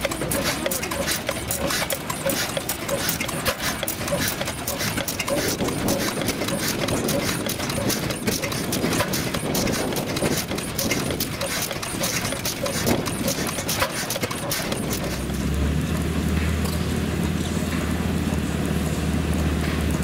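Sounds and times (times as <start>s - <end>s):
clatter of clicks and knocks: 0.0s - 15.3s
low mechanical hum: 0.0s - 20.0s.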